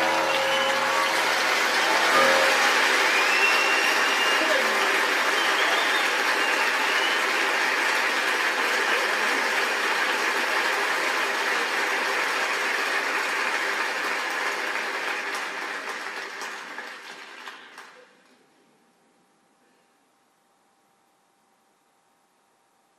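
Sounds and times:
audience applause: 0.0 - 18.1.

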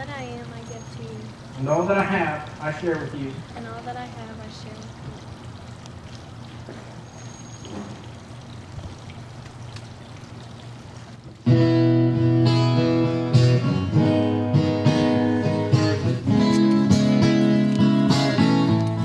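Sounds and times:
acoustic guitar strumming: 11.4 - 19.0.

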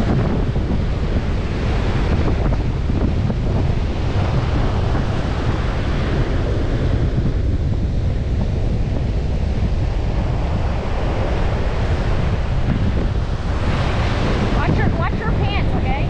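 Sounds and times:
ocean surf on beach: 0.0 - 16.0
wind rumbling on microphone: 0.0 - 16.0.

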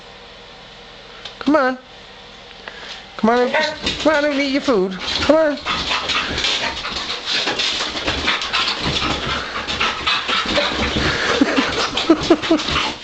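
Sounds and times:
dog panting: 3.4 - 13.0.

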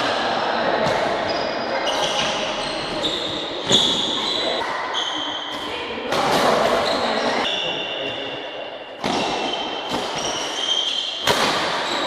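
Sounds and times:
shoes squeaking on court: 1.2 - 5.5, 9.0 - 11.2
racket striking shuttlecock: 9.0 - 12.0.

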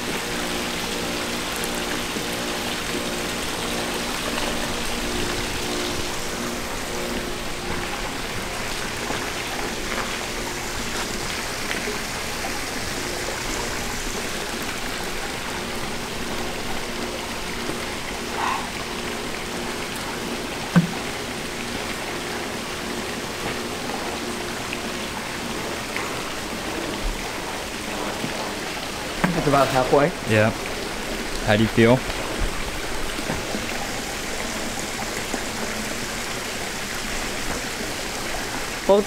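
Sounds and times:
faint hum: 0.0 - 38.9
rushing water-like noise: 0.0 - 39.0.

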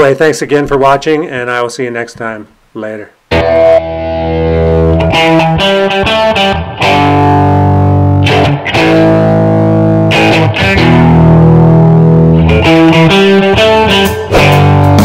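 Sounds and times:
distorted guitar chords: 3.3 - 15.0.

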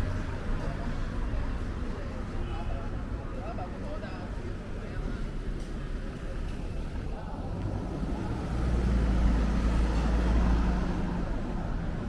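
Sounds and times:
street noise: 0.0 - 12.0
car driving past: 7.5 - 11.6.

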